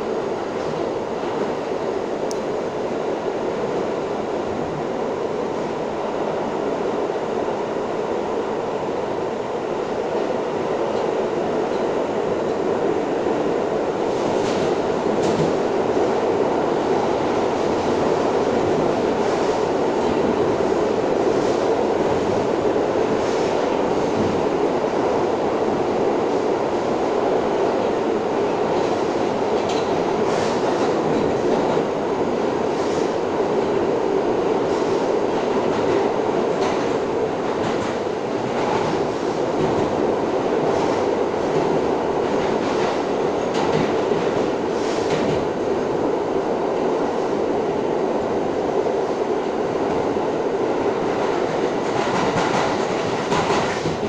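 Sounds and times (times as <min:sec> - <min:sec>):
subway train wheels rumbling: 0:00.0 - 0:54.0
track clacks: 0:40.6 - 0:45.5, 0:51.0 - 0:54.0.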